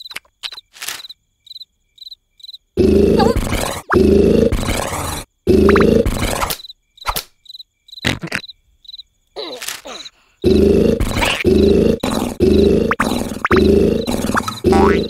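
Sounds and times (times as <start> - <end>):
crickets chirping: 0.0 - 15.0
cartoon snoring: 2.8 - 6.6, 9.4 - 15.0.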